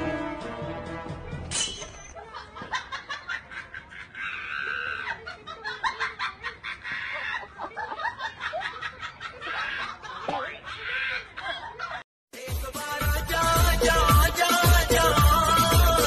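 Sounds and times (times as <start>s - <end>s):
high-pitched giggling laughter: 2.2s - 12.0s.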